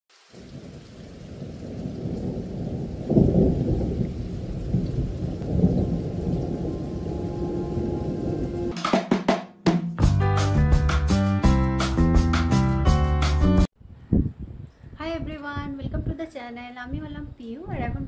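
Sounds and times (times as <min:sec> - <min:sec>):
heavy rain: 0:00.1 - 0:08.7
low rumble of thunder: 0:00.3 - 0:08.7.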